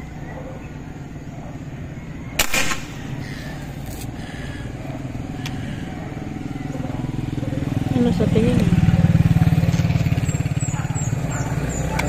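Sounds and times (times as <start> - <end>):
gunshot crack: 2.4 - 3.1.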